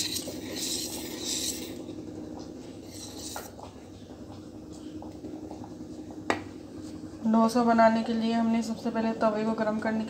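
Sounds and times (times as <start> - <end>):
whisk stirring batter in a bowl: 0.0 - 3.7
faint steady hum: 0.0 - 10.0.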